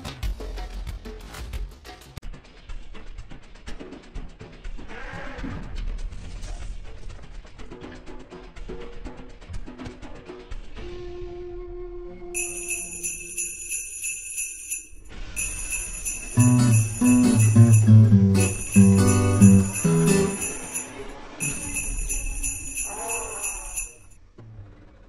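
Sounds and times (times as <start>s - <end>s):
jingling bells: 12.4s - 24.1s
low bass melody: 16.4s - 20.4s.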